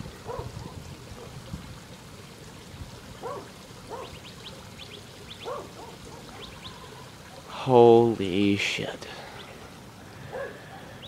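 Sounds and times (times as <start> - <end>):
wind rumbling on microphone: 0.0 - 2.0.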